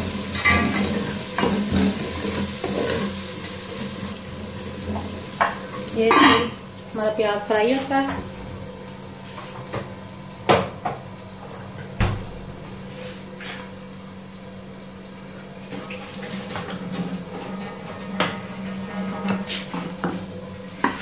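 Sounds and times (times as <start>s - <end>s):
onions sizzling in covered pot: 0.0s - 8.1s.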